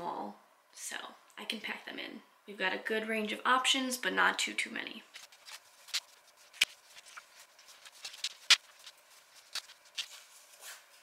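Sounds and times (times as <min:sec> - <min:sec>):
fabric rustling: 0:05.1 - 0:11.0.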